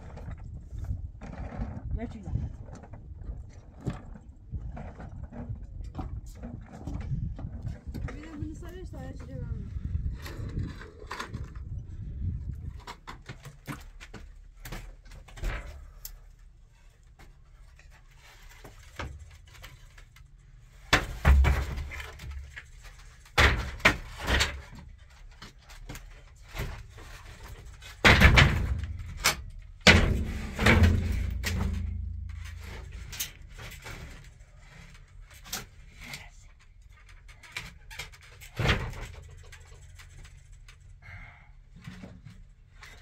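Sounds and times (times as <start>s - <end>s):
wooden planks knocking and thudding: 20.8s - 34.4s.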